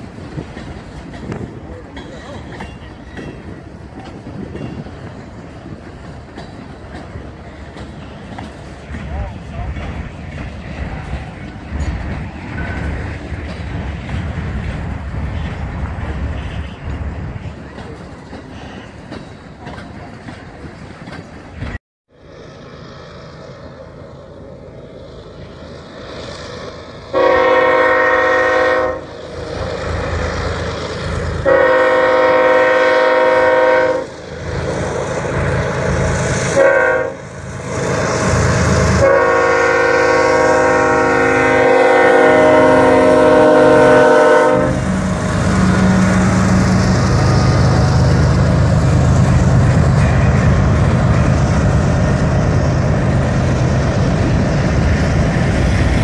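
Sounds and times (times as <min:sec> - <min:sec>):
freight train rumbling past: 0:00.0 - 0:56.0
locomotive engine rumble: 0:00.0 - 0:56.0
locomotive air horn: 0:27.1 - 0:29.1, 0:31.4 - 0:34.2, 0:36.6 - 0:38.0, 0:38.8 - 0:47.8.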